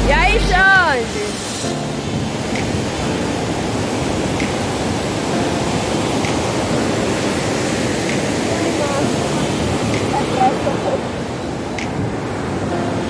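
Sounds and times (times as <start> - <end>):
white water rushing through gorge: 2.8 - 12.6.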